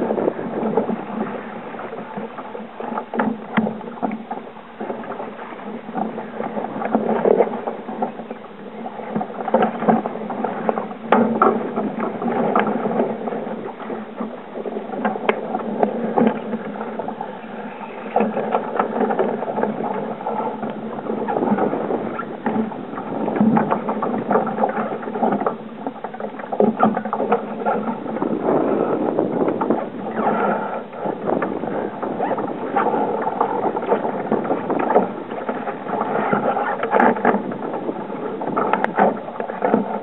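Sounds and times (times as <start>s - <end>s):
strong wind: 0.0s - 40.0s
water rushing along a hull: 0.0s - 40.0s.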